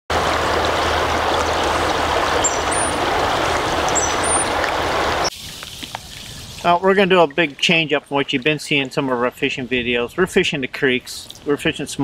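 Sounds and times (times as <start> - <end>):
creek water rushing: 0.1 - 9.4.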